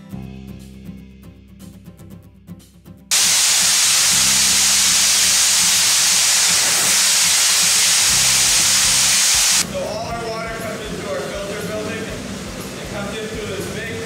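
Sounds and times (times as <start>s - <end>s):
spray jets hissing: 3.1s - 9.7s.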